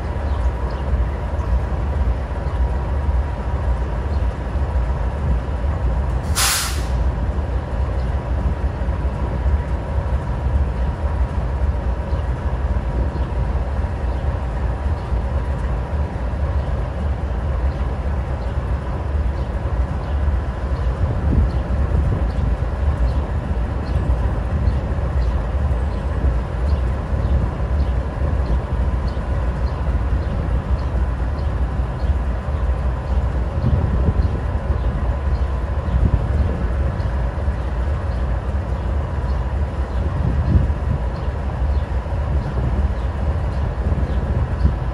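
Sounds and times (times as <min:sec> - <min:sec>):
sharp hiss of released air: 0:06.2 - 0:07.0.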